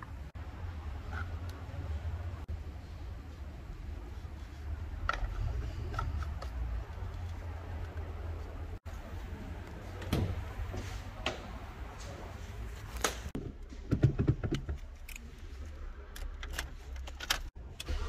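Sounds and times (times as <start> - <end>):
car door clicks and knocks: 13.4 - 14.8.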